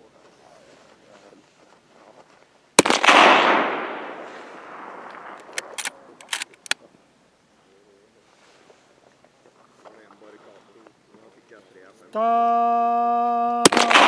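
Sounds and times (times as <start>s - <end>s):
rifle shot with echo: 2.8s - 6.8s, 13.6s - 14.0s.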